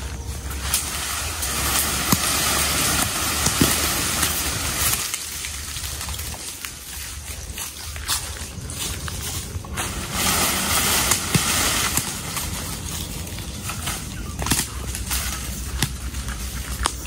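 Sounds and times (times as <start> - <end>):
dry leaves rustling: 0.0 - 17.0.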